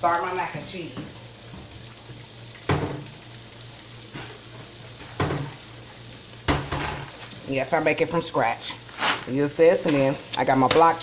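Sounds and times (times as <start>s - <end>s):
meat sizzling in a skillet: 0.0s - 11.0s
kitchen things clattering: 6.5s - 7.2s.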